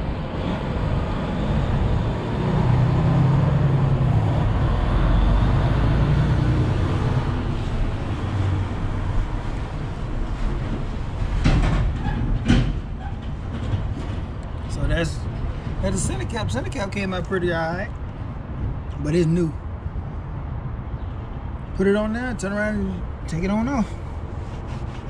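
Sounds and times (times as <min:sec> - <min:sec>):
heavy vehicle engine rumble: 0:00.0 - 0:21.7, 0:22.6 - 0:25.0.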